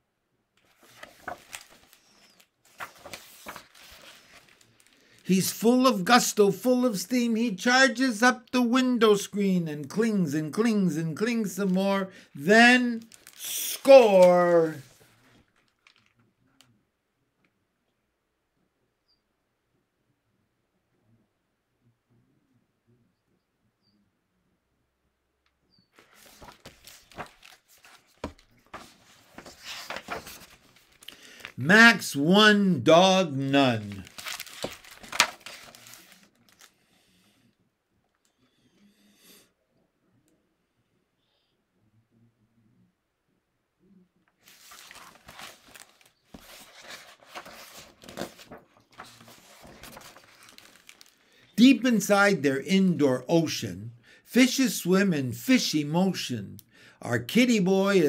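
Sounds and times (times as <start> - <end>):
paper rustling: 0.6 - 7.1, 9.2 - 16.1, 26.0 - 32.1, 33.3 - 36.7, 44.4 - 51.8.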